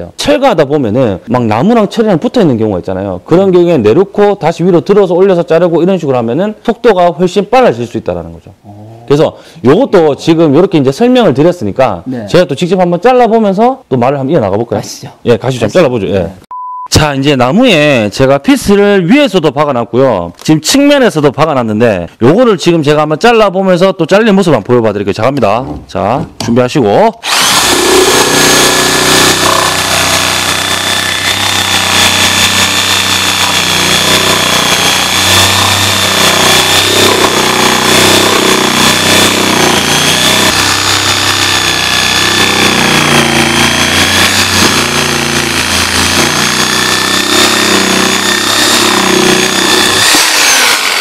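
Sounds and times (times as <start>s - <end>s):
reciprocating saw motor whining: 27.2s - 51.0s.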